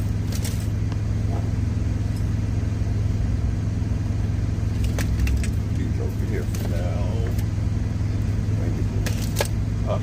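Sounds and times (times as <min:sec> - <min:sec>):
truck engine idling: 0:00.0 - 0:10.0.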